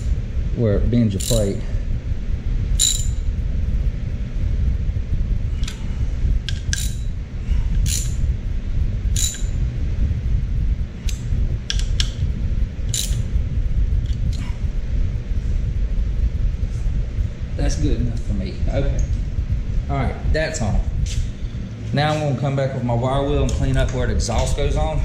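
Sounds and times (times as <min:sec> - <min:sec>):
steady low rumble: 0:00.0 - 0:25.0
ratchet wrench clicking: 0:01.2 - 0:01.5, 0:02.8 - 0:03.2, 0:06.5 - 0:07.1, 0:07.8 - 0:08.2, 0:09.2 - 0:09.5, 0:12.9 - 0:13.2.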